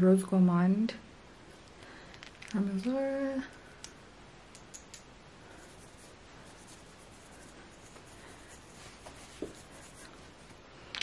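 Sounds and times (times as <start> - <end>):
faint scratching: 5.5 - 10.6.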